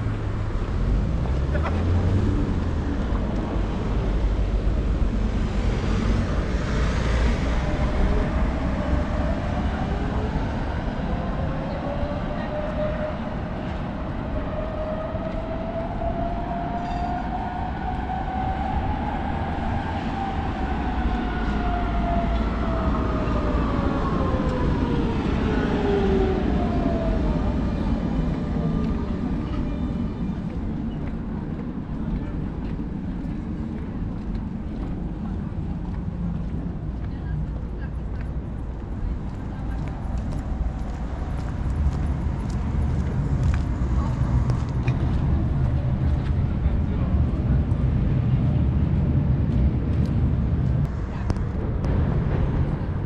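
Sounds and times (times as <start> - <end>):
steady low rumble: 18.7 - 53.0.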